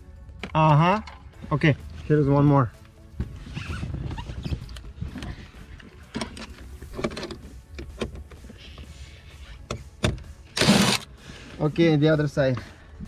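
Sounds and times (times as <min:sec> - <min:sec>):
cordless drill unscrewing screws: 0:09.6 - 0:11.1.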